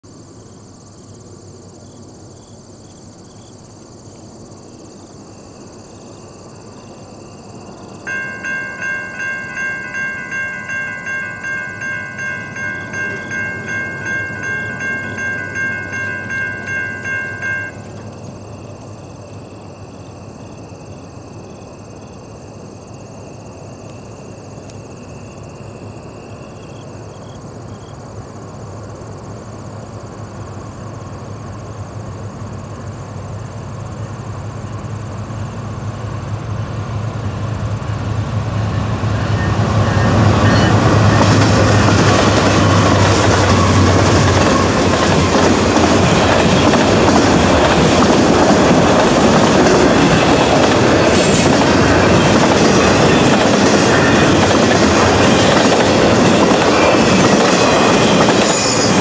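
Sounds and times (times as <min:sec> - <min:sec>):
faint steady ringing tone: 0:07.6 - 0:22.2
crossing bell ringing: 0:08.0 - 0:18.4, 0:38.8 - 0:59.0.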